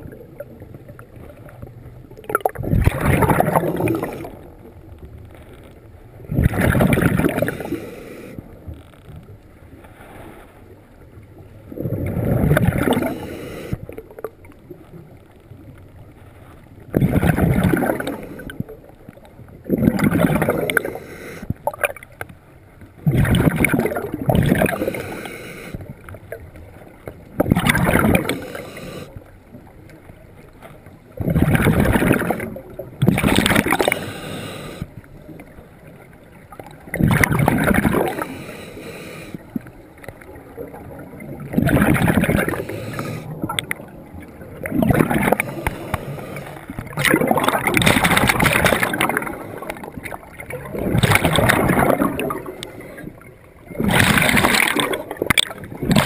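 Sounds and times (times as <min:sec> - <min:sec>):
underwater exhaled breath bubbles: 0:00.0 - 0:04.6, 0:06.2 - 0:08.5, 0:11.7 - 0:14.8, 0:16.9 - 0:18.9, 0:19.6 - 0:22.0, 0:23.0 - 0:26.5, 0:27.3 - 0:29.2, 0:31.1 - 0:35.5, 0:36.6 - 0:56.0.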